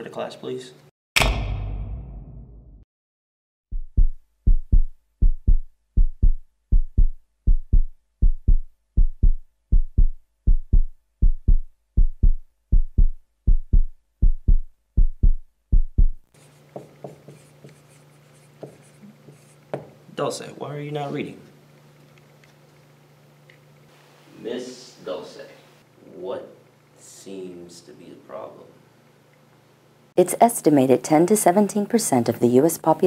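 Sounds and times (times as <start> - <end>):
heartbeat thumps: 3.7 - 16.3
low room hum: 4.5 - 33.0
marker scratching on whiteboard: 16.4 - 19.6.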